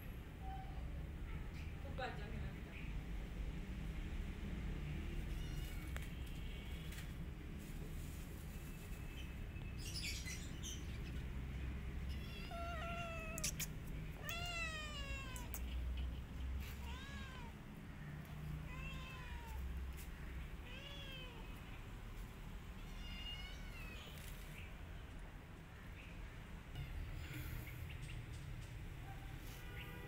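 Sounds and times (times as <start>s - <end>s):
kitten meowing: 12.1s - 15.7s.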